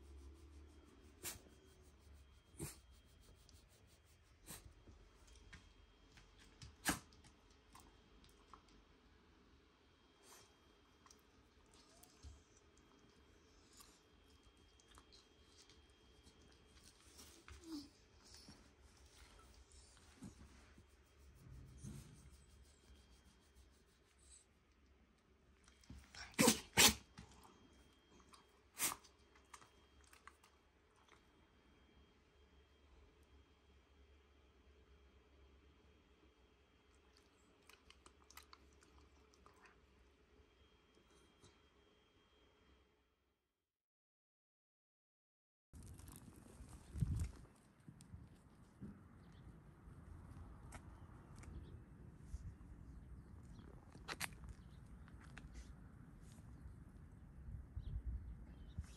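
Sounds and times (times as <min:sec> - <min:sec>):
dog sneezing: 0:26.2 - 0:27.1.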